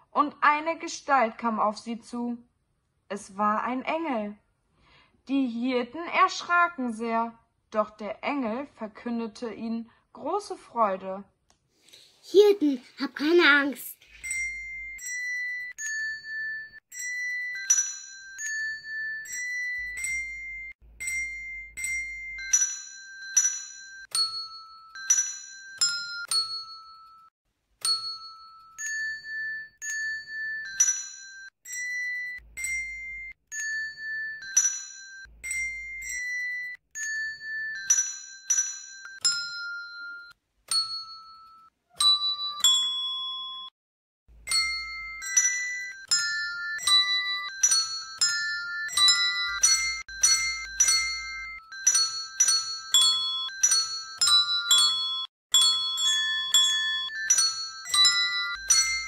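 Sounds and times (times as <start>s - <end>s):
hand bell melody: 14.0s - 43.7s, 44.4s - 59.0s.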